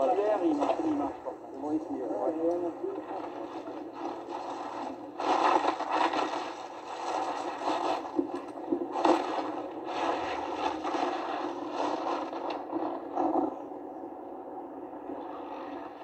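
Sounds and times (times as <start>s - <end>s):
skis scraping over snow: 3.2s - 13.6s.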